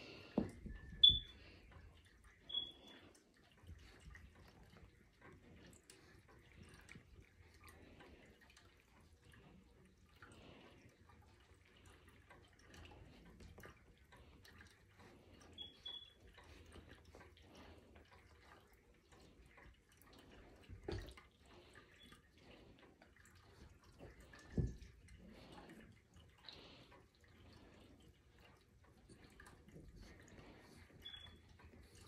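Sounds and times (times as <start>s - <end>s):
faint high beep: 1.0s - 1.3s.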